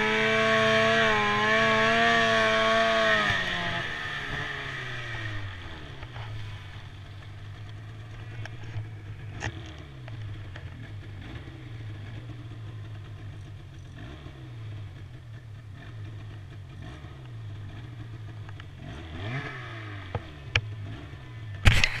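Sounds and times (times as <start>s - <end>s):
snowmobile engine running: 0.0s - 22.0s
sharp clicks and knocks: 7.1s - 10.8s, 21.6s - 22.0s.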